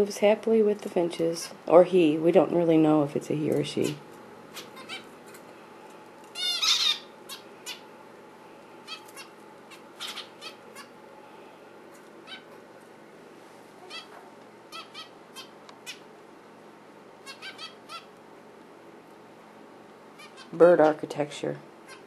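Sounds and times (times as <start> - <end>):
finches calling: 3.8 - 5.1, 6.3 - 7.9, 8.8 - 11.0, 14.7 - 16.1, 17.2 - 18.1.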